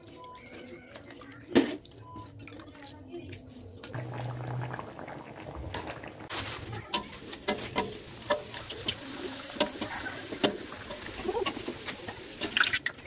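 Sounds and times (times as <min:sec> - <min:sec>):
hot oil sizzling with crackles: 0:03.9 - 0:13.0.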